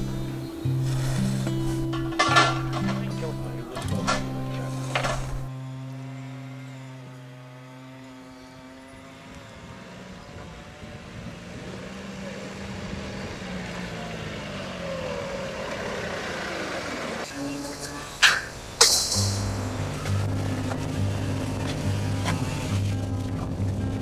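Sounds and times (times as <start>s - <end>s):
held music chord: 0.0s - 10.6s, 17.2s - 24.0s
small truck engine running: 0.0s - 24.0s.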